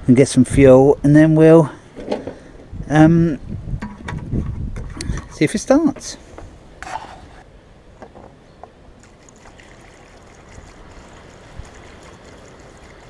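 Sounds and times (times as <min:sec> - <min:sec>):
fuel trickling through funnel: 0:09.0 - 0:13.0.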